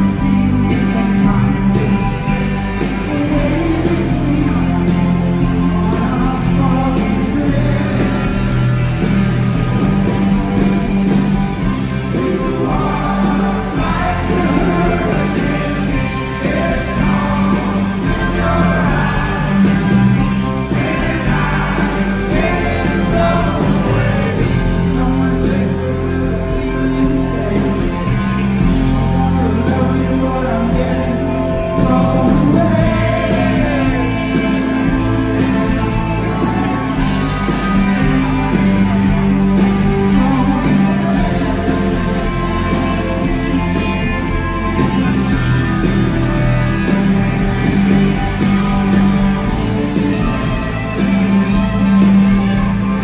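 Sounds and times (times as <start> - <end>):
person singing: 0.0 - 8.6
electric guitars: 0.0 - 53.0
live rock band playing: 0.0 - 53.0.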